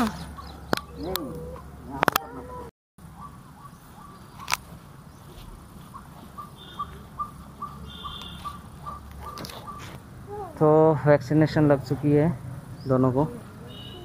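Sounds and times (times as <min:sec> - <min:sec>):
outdoor background noise: 0:00.0 - 0:14.0
bird repeating short call: 0:06.4 - 0:09.8.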